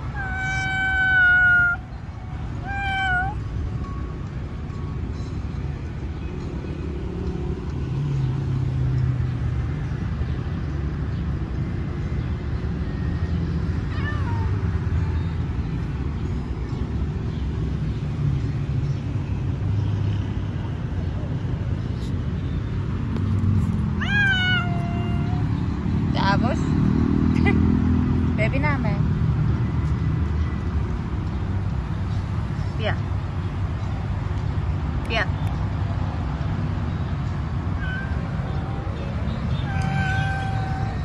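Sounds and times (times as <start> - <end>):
cat meowing: 0.0 - 2.0, 2.6 - 3.4, 13.9 - 14.6, 24.0 - 25.6, 37.7 - 41.0.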